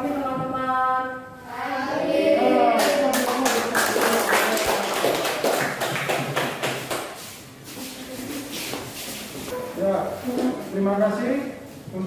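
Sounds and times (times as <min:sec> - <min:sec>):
children applauding: 0:02.8 - 0:07.1.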